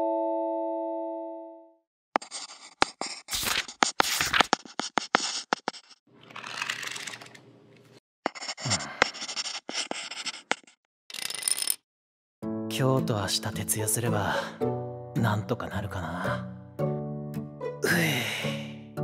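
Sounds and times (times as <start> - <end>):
pencil scratching on paper: 2.2 - 6.0, 8.2 - 10.8
paper sheets rustling: 2.2 - 8.0.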